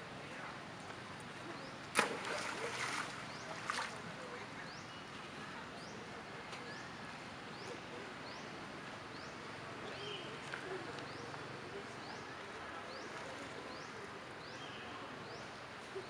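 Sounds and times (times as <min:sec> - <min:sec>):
water splashing and sloshing: 0:01.9 - 0:04.3.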